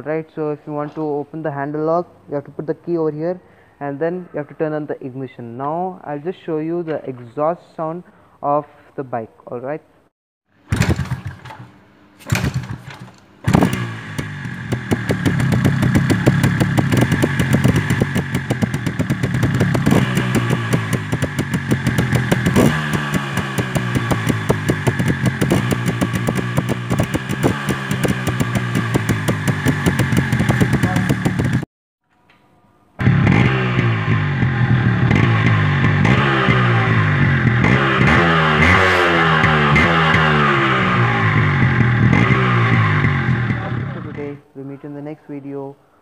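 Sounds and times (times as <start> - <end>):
two-stroke motorcycle engine revving: 10.7 - 31.7, 33.0 - 44.4.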